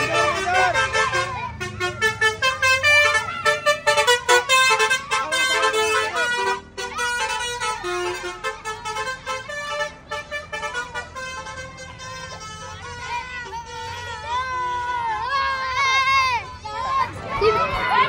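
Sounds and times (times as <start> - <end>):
musical air horn: 0.0 - 14.0
children shouting excitedly: 0.0 - 18.0.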